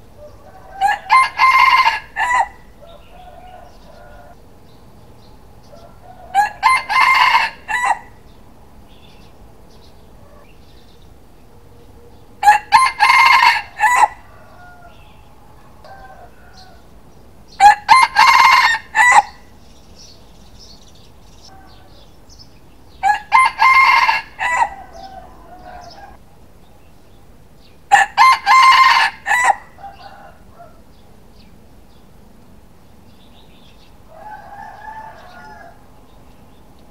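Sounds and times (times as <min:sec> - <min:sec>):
soft rooster calls: 0:00.1 - 0:04.4, 0:05.6 - 0:08.2, 0:12.4 - 0:17.0, 0:21.4 - 0:22.2, 0:23.0 - 0:26.2, 0:27.9 - 0:31.0, 0:34.0 - 0:36.0
rooster crowing: 0:00.2 - 0:04.4, 0:05.6 - 0:08.2, 0:12.4 - 0:17.0, 0:17.6 - 0:19.5, 0:21.5 - 0:22.1, 0:23.0 - 0:26.2, 0:27.9 - 0:30.9, 0:34.0 - 0:35.9.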